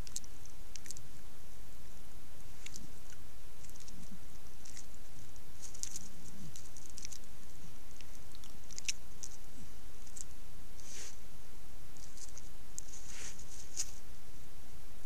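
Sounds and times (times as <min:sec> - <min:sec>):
animal chewing clicks and smacks: 0:00.0 - 0:01.1, 0:05.6 - 0:07.3, 0:08.0 - 0:09.4
steady hiss: 0:00.0 - 0:15.0.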